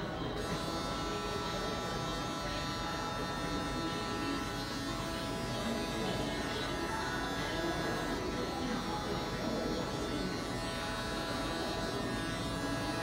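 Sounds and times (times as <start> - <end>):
electric hair clippers buzzing: 0.0 - 13.0.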